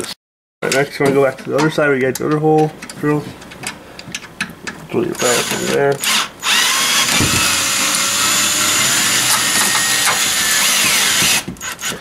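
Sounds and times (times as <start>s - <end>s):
cordless drill driving screw: 5.2s - 12.0s.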